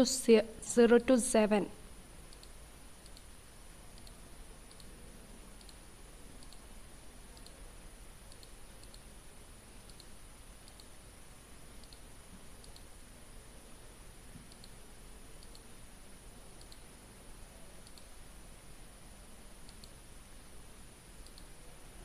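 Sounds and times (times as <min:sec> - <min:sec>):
faint computer mouse clicks: 0:02.3 - 0:03.3, 0:03.9 - 0:04.9, 0:05.6 - 0:05.8, 0:06.4 - 0:06.7, 0:07.4 - 0:07.6, 0:08.3 - 0:09.1, 0:09.8 - 0:10.9, 0:11.8 - 0:12.0, 0:12.6 - 0:12.9, 0:14.4 - 0:14.8, 0:15.4 - 0:15.7, 0:16.6 - 0:16.9, 0:17.8 - 0:18.1, 0:19.6 - 0:20.0, 0:21.2 - 0:21.5.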